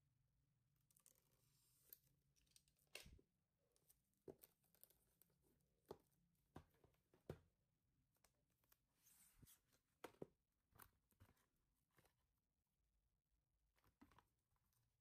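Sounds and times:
handling taps and knocks: 5.8 - 7.6.

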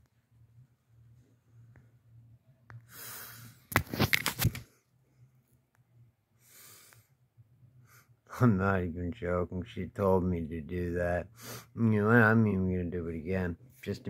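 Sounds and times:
low steady hum: 0.0 - 3.7, 4.6 - 14.0
person breathing: 2.8 - 3.7, 6.4 - 7.2, 11.3 - 11.8.

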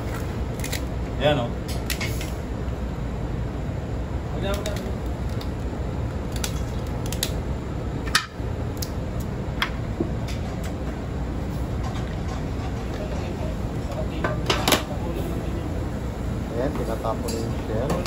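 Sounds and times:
steady low hum: 0.0 - 18.0
shears cracking crab shell: 0.5 - 0.9, 4.5 - 5.6, 6.3 - 7.4.

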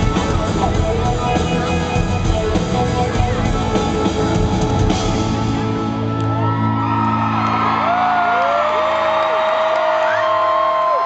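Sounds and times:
live rock band playing: 0.0 - 7.8
crowd whooping and cheering: 5.9 - 11.0.

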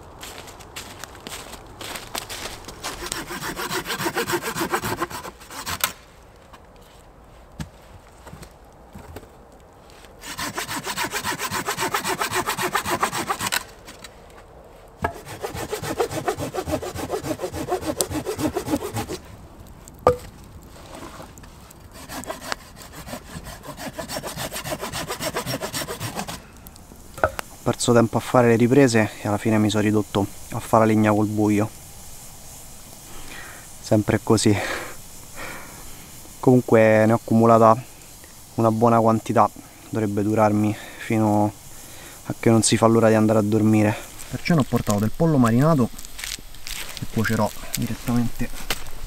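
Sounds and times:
hand saw cutting log: 2.8 - 6.0, 10.2 - 13.7, 15.0 - 19.3, 21.8 - 26.4.

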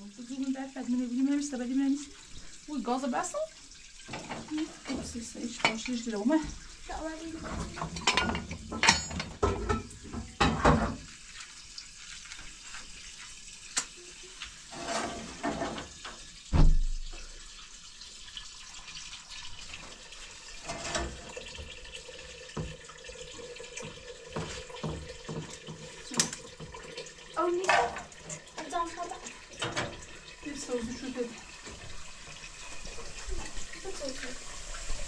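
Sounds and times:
water running and splashing: 0.0 - 35.0
heavy thump: 16.5 - 17.1.

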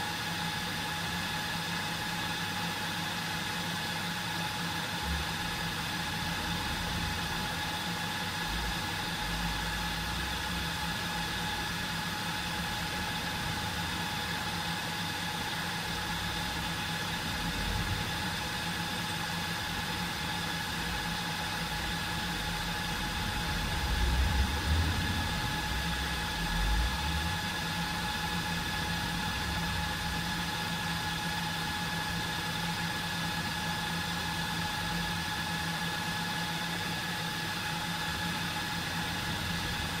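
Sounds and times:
server cooling fans whirring: 0.0 - 40.0
low bumps: 22.3 - 30.0.

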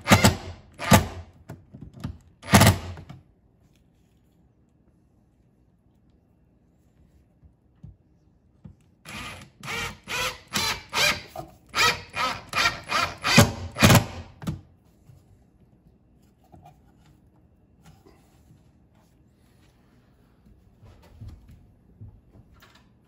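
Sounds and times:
cordless drill driving screw: 9.1 - 14.2.

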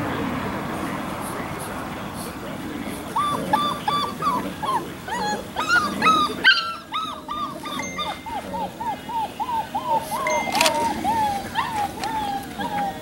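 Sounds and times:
puppies yipping and whining: 2.9 - 13.0.

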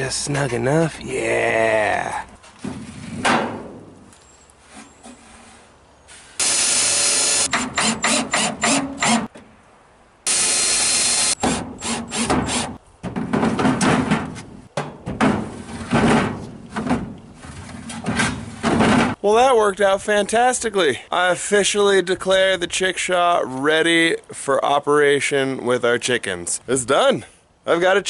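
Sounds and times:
cordless drill driving screws: 6.4 - 9.2, 10.3 - 12.7.

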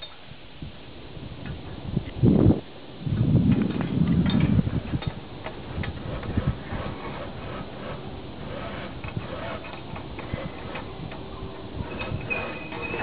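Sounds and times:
wind rumble on microphone: 0.2 - 13.0
metallic clicks of climbing hardware: 8.6 - 11.2.

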